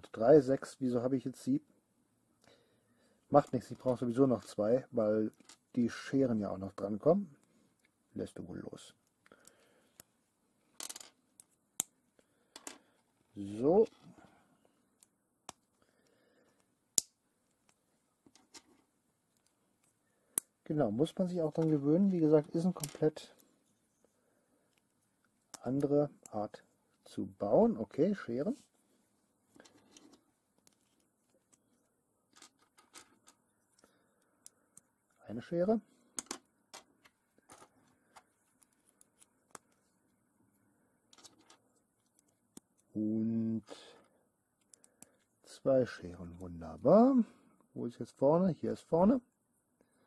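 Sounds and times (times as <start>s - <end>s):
faint handling noise: 3.2s - 15.8s, 17.4s - 43.0s.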